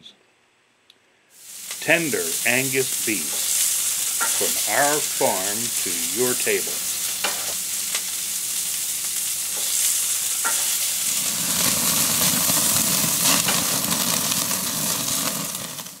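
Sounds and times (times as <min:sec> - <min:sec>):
steaks sizzling on grill: 0:01.4 - 0:16.0.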